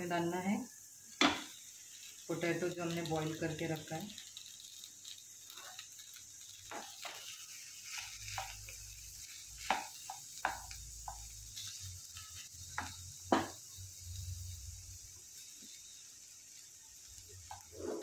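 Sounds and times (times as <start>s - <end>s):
faint sizzle: 0.0s - 18.0s
spatula scraping a frying pan: 5.5s - 13.5s, 17.4s - 18.0s.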